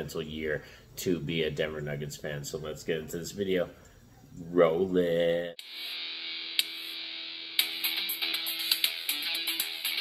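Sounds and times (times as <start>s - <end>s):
guitar theme music: 5.6s - 10.0s.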